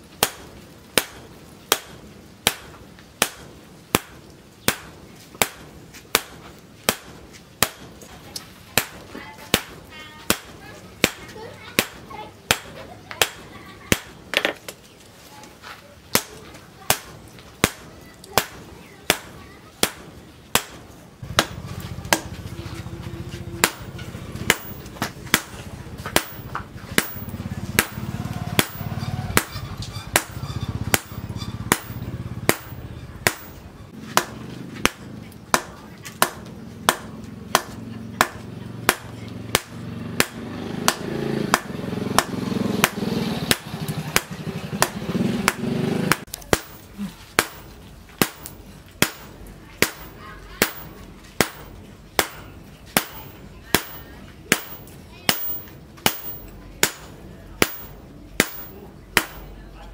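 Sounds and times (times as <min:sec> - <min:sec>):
hammer striking steel on anvil: 0:18.4 - 0:22.4, 0:23.6 - 0:59.6.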